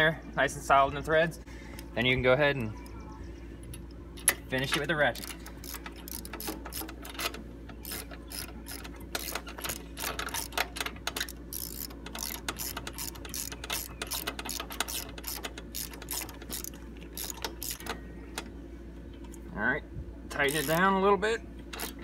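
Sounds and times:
hand ratchet clicking: 4.2 - 18.0, 20.5 - 20.8, 21.7 - 22.0.

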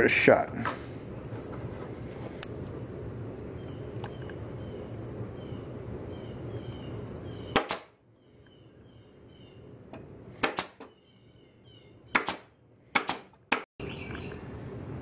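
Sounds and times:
pneumatic stapler firing: 7.5 - 7.9, 10.4 - 10.9, 12.1 - 13.6.

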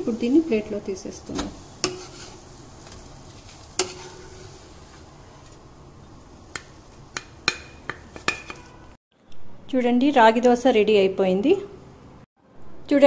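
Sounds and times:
wooden spatula knocking on pan: 6.5 - 8.8.

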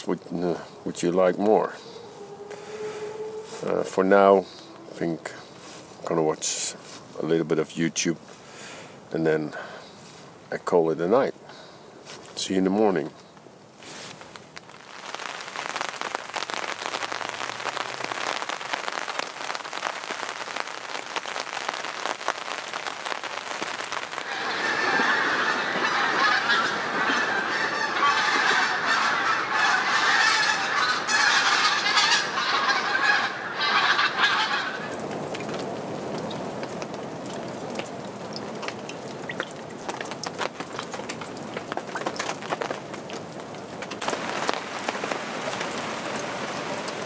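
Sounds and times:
rain on a tarp: 0.0 - 10.6, 11.2 - 47.0
geese honking: 0.5 - 5.6, 23.9 - 35.3.

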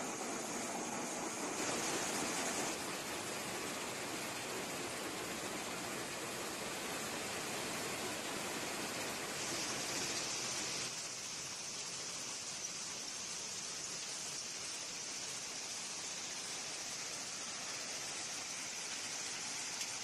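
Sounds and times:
sand plant machinery rushing: 0.0 - 6.9.

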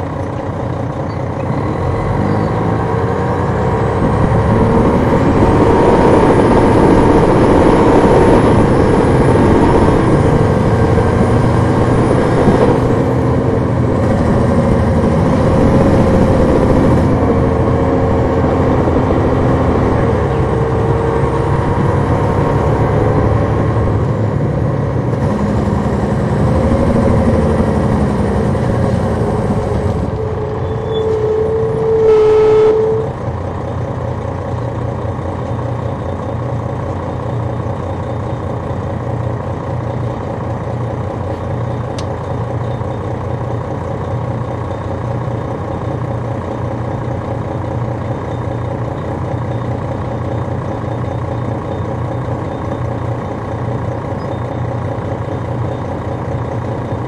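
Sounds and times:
diesel coach engine running: 0.0 - 57.0
loud steady tone: 3.8 - 33.6.

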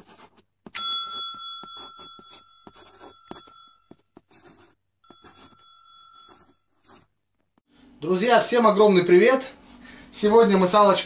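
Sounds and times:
marker scribbling: 0.0 - 0.8, 1.6 - 7.1
bright bell ding: 0.8 - 3.8.

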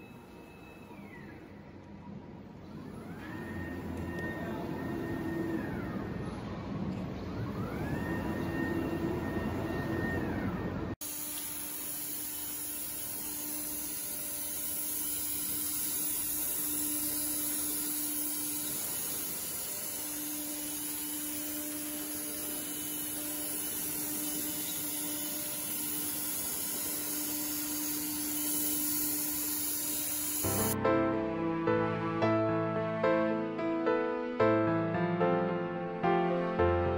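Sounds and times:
low machine hum: 0.0 - 30.8
router spindles hissing: 11.0 - 30.8.

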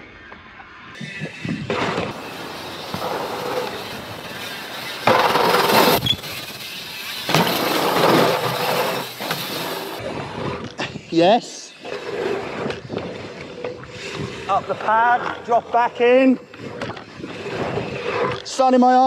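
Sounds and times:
bike tyres rolling over dirt: 0.1 - 11.1
wind rushing: 11.8 - 18.3.

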